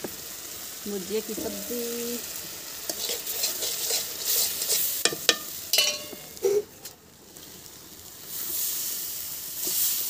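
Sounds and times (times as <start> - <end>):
food sizzling in a pan: 0.0 - 10.0
spoon stirring: 2.9 - 6.3
ringing metal clink: 5.8 - 6.3.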